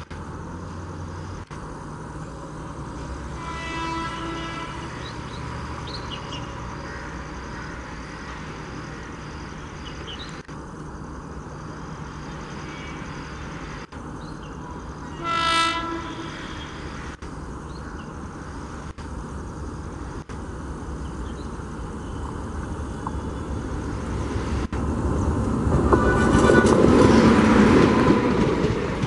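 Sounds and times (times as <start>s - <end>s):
locomotive rumble: 0.0s - 29.0s
train horn blast: 3.3s - 5.1s, 15.1s - 16.7s.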